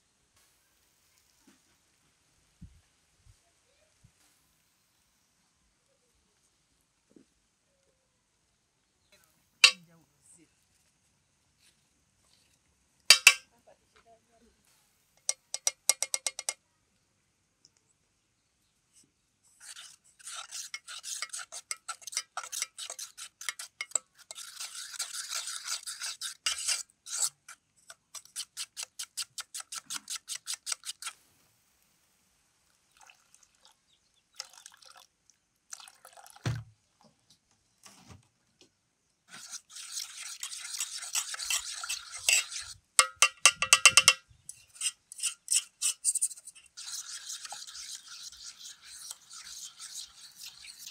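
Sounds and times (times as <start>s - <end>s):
fork beating batter in metal bowl: 13.1s - 13.4s, 15.2s - 16.6s, 19.5s - 31.2s, 39.3s - 50.9s.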